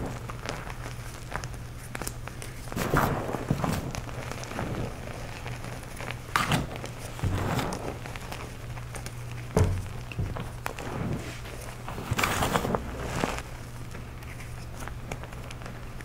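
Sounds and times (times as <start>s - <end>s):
powder clumps crunching: 0.0s - 16.0s
thuds: 6.5s - 8.0s, 9.5s - 13.0s.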